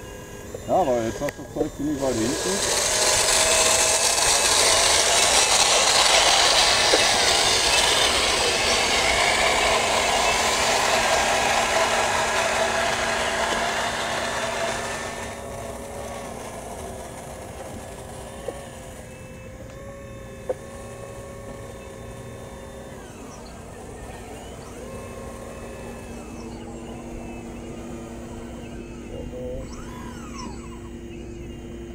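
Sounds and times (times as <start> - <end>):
small motors whining: 0.0 - 31.9
toy motor grinding whirr: 0.0 - 31.9.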